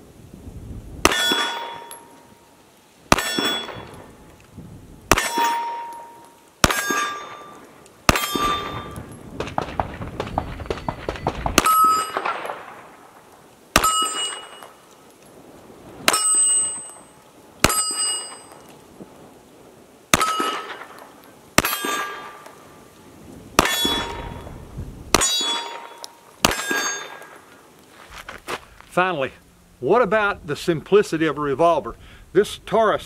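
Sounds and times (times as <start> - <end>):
pistol shots: 1.0 - 2.0, 3.1 - 4.0, 5.1 - 12.8, 13.8 - 14.8, 20.1 - 22.5, 23.6 - 24.5, 25.1 - 27.4
steel target plate clanging: 1.1 - 2.4, 3.1 - 4.0, 5.1 - 9.2, 10.2 - 12.6, 13.8 - 14.8, 16.1 - 18.7, 20.2 - 20.9, 21.6 - 22.6, 23.6 - 27.4.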